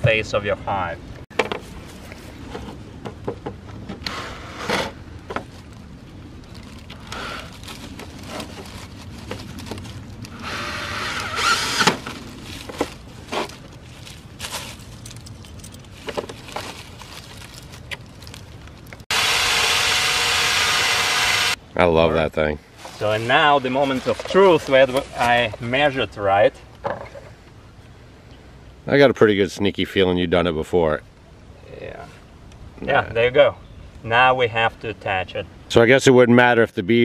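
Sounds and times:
drill hole saw cutting metal: 0:10.4 - 0:11.9, 0:19.1 - 0:21.6.

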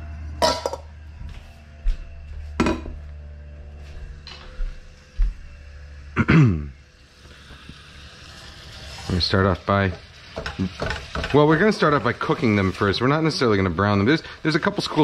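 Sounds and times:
low steady hum: 0:00.0 - 0:08.5
kitchen utensils clinking and knocking: 0:00.4 - 0:00.8, 0:09.8 - 0:12.9.

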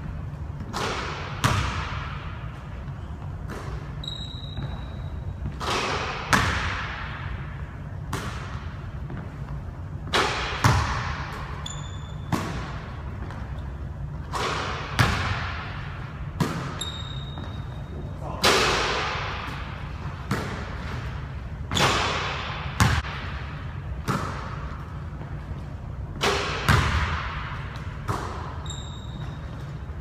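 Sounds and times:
low hum of hall: 0:00.0 - 0:30.0
basketball bouncing on hardwood floor: 0:01.4 - 0:02.2, 0:10.1 - 0:13.6, 0:14.9 - 0:15.6, 0:22.8 - 0:23.3, 0:26.3 - 0:29.4
sneaker squeaks: 0:02.6 - 0:06.5, 0:08.4 - 0:15.1, 0:16.4 - 0:18.4, 0:19.5 - 0:23.0, 0:27.8 - 0:30.0.

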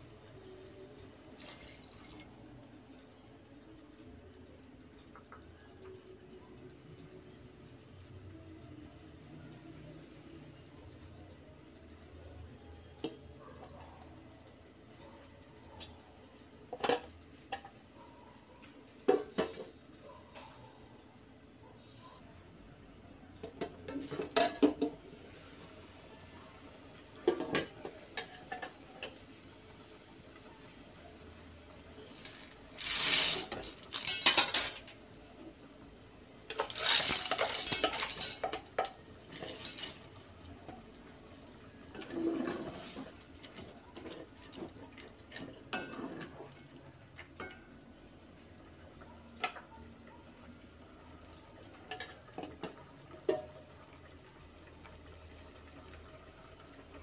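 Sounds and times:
dry pasta poured into a pot: 0:32.1 - 0:34.8, 0:36.5 - 0:38.4
metal lid clanking on pot: 0:36.5 - 0:38.9.

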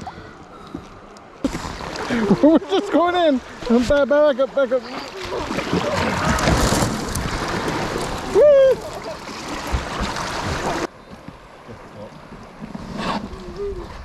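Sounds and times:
river water rushing and splashing: 0:01.3 - 0:12.9
person exclaiming: 0:08.4 - 0:08.9.

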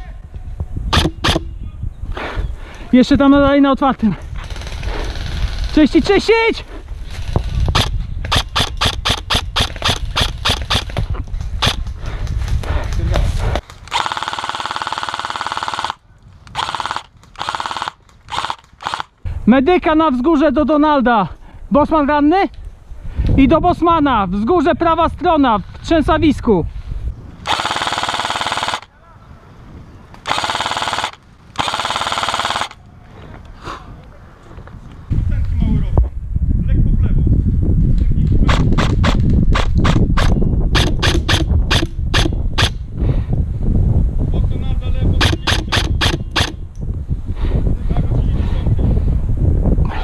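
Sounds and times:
rapid airsoft gun shots: 0:00.9 - 0:01.5, 0:07.1 - 0:11.9, 0:13.7 - 0:19.1, 0:27.5 - 0:28.9, 0:30.2 - 0:32.8, 0:38.4 - 0:42.8, 0:45.2 - 0:46.6.

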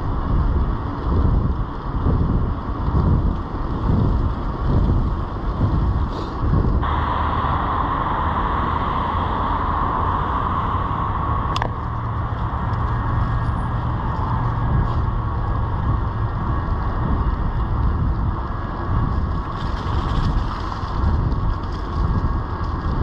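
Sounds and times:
wind on microphone: 0:00.0 - 0:23.0
bicycle tyre hiss on wet pavement: 0:03.8 - 0:15.2, 0:16.3 - 0:23.0.

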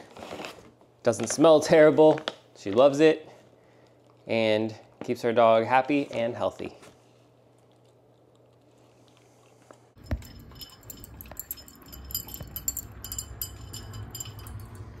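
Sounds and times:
collar tags clinking on bowl: 0:10.0 - 0:15.0.

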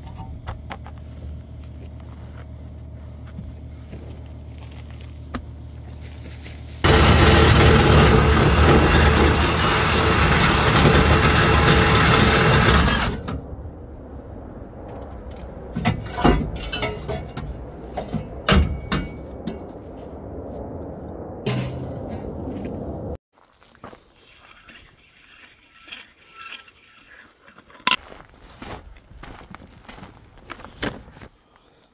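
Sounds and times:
sandblaster hissing: 0:06.8 - 0:13.2.

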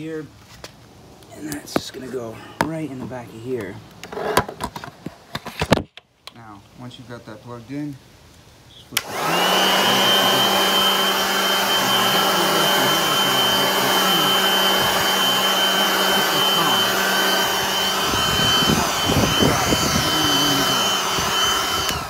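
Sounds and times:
leaf blower running: 0:09.0 - 0:22.0.

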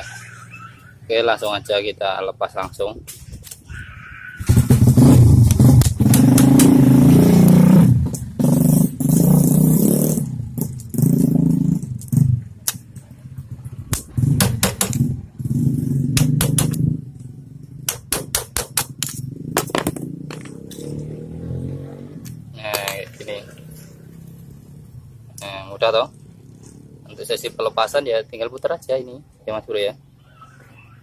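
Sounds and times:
motorcycle engine revving: 0:04.4 - 0:18.1, 0:18.8 - 0:28.3
sharp metallic clicks and taps: 0:05.4 - 0:06.8, 0:11.8 - 0:13.1, 0:13.9 - 0:15.1, 0:16.1 - 0:20.9.

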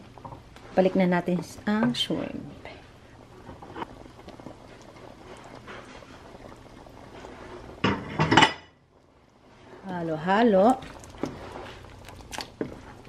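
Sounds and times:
wooden spatula scraping pan: 0:11.1 - 0:11.9.

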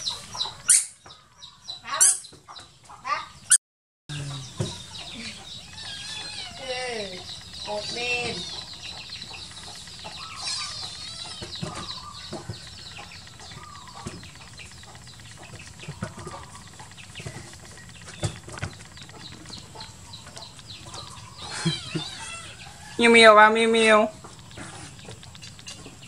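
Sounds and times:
high-pitched animal chirps: 0:00.0 - 0:01.0, 0:01.7 - 0:02.4, 0:04.2 - 0:12.3, 0:20.9 - 0:23.2.

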